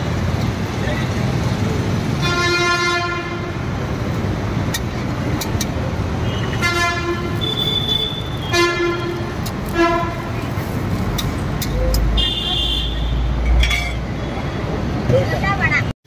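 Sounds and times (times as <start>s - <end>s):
road traffic noise: 0.0s - 16.0s
vehicle horns honking: 2.2s - 3.6s, 6.2s - 10.4s, 12.1s - 14.0s.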